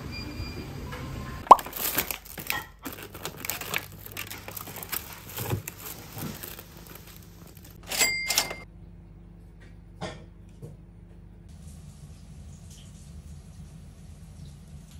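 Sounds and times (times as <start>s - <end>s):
plastic bag and cling film rustling: 1.6s - 7.9s.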